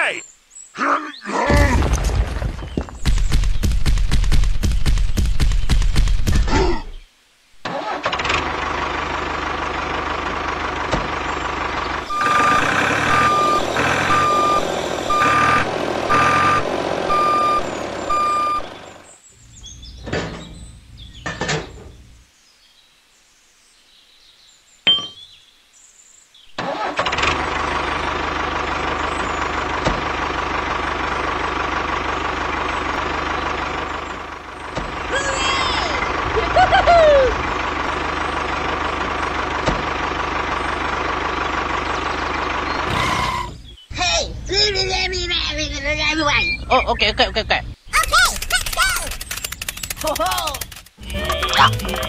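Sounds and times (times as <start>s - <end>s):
tractor engine running: 1.8s - 6.5s, 7.7s - 22.1s, 26.6s - 46.6s, 47.9s - 52.0s
reversing alarm beeping: 12.0s - 18.9s.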